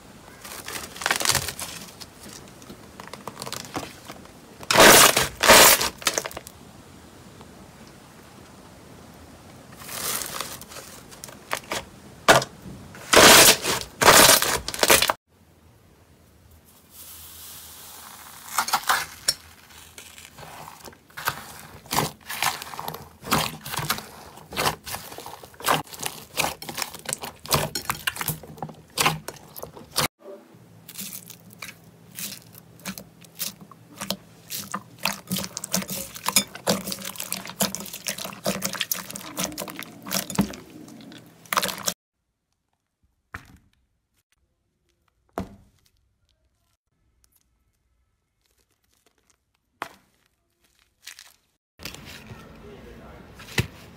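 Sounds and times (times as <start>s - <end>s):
slime squelching: 18.0s - 30.1s, 30.8s - 42.0s, 44.6s - 52.4s.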